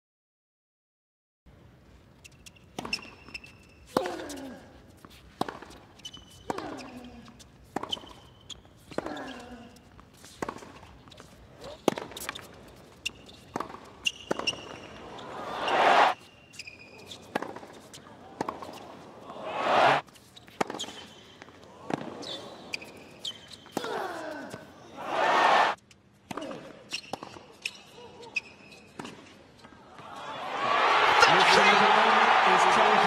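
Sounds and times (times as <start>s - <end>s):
tennis shoes squeaking: 1.9s - 29.8s
racket hitting tennis ball: 11.7s - 12.5s
crowd noise: 15.0s - 16.2s, 18.2s - 20.0s, 24.9s - 25.8s, 29.6s - 33.0s.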